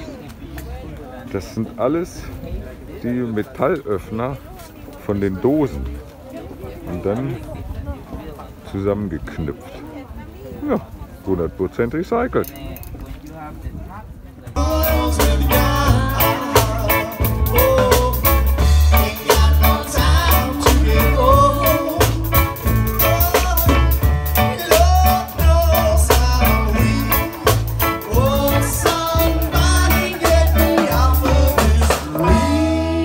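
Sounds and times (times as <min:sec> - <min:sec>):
live rock band playing: 0:14.6 - 0:33.0
person singing: 0:14.6 - 0:33.0.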